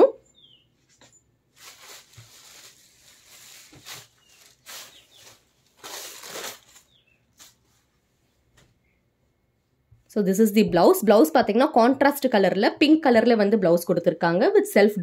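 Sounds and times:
fabric rustling: 0.9 - 8.6.

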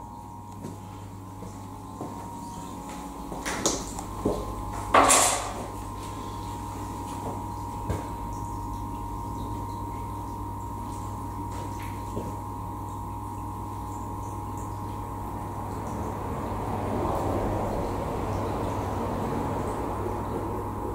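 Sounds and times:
water pump humming: 0.0 - 20.9
water flowing: 5.7 - 20.9.

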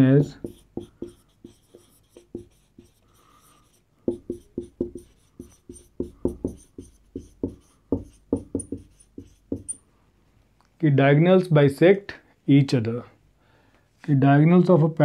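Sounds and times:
marker writing on whiteboard: 0.0 - 9.8.

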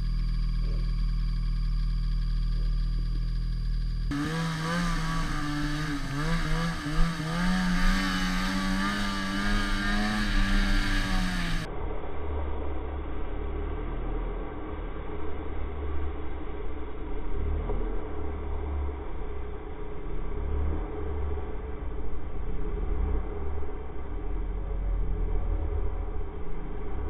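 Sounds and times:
muffled engine rumble: 0.0 - 27.0
snowmobile engine revving: 4.1 - 11.7.

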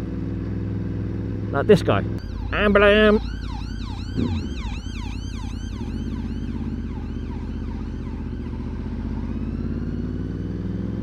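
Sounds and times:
motorcycle engine running: 0.0 - 11.0
ambulance siren yelping: 2.2 - 11.0.

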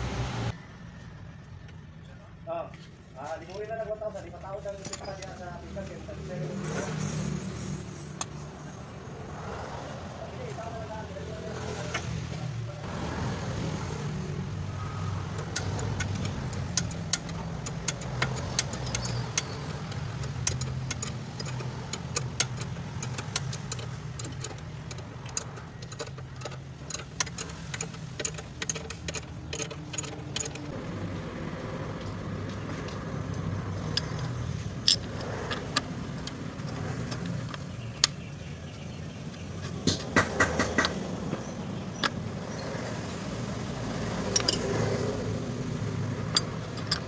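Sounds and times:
spanner clicking on bolt: 15.2 - 30.7, 33.8 - 38.2, 44.2 - 44.7, 46.2 - 47.0.

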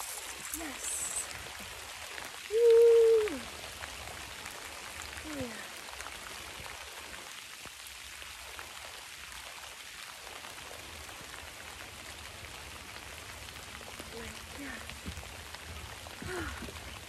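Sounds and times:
rain falling on a pond: 0.0 - 17.0.

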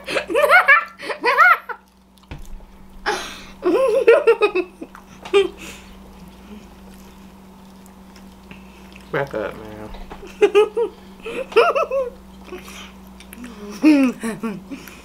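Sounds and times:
breathy burst: 3.0 - 3.6
people laughing: 3.6 - 5.6, 10.2 - 12.2, 13.6 - 14.8.

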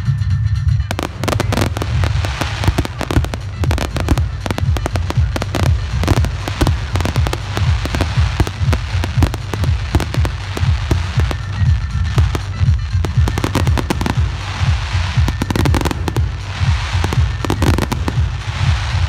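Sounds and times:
fireworks shell bursts and crackling: 0.9 - 19.0.

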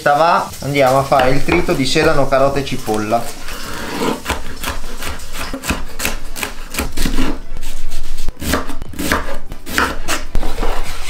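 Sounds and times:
knife chopping vegetables: 3.7 - 7.7, 8.3 - 10.7.

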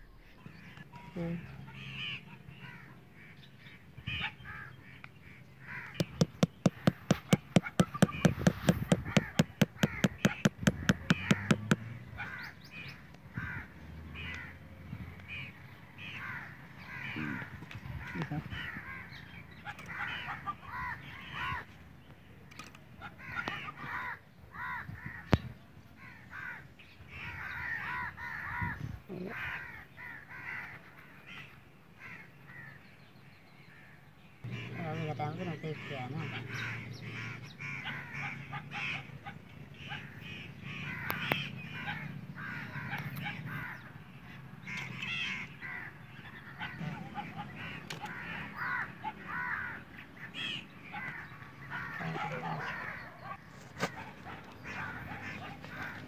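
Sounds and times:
birds calling: 0.0 - 56.0
crows cawing: 1.4 - 21.8, 22.6 - 32.8, 33.7 - 56.0
hammer tapping wooden stake: 5.9 - 11.9.

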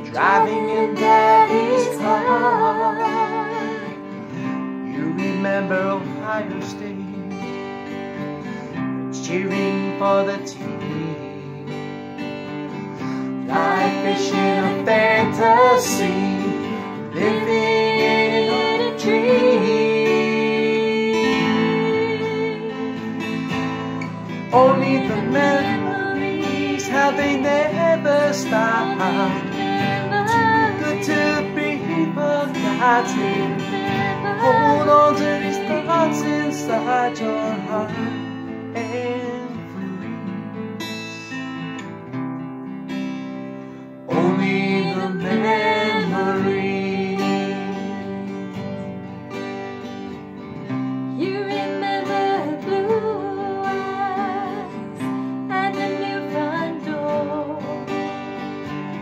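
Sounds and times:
man and woman singing: 0.0 - 7.2, 9.1 - 11.7, 13.0 - 23.2, 24.0 - 40.3, 44.1 - 48.7, 51.1 - 57.9
acoustic guitars strummed: 0.0 - 59.0.

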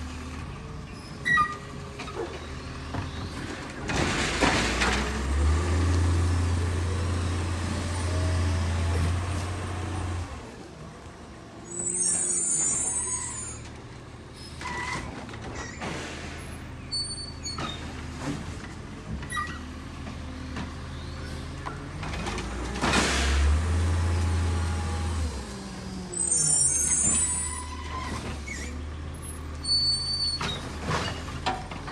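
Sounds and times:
garbage truck engine revving: 3.4 - 10.4, 22.0 - 26.8.

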